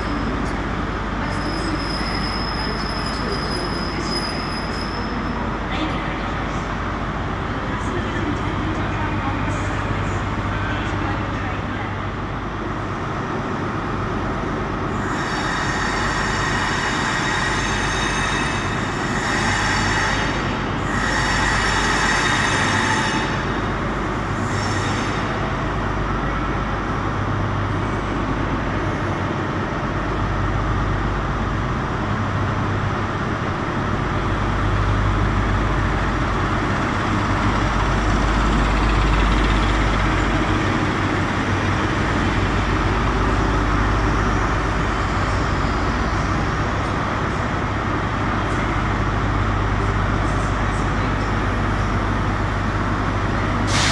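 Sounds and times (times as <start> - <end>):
train brakes squealing: 1.2 - 5.4, 14.9 - 23.5, 24.4 - 25.4, 53.6 - 53.9
diesel engine rumbling: 25.2 - 53.9.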